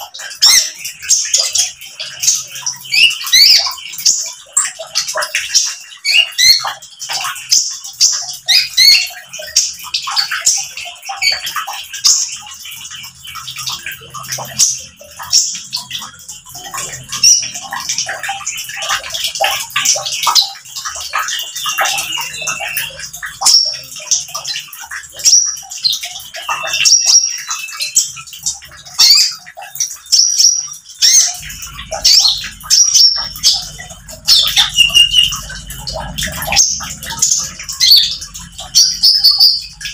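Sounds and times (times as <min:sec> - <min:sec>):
bird twittering and trilling: 0:00.0 - 0:39.9
trickling water: 0:00.0 - 0:39.9.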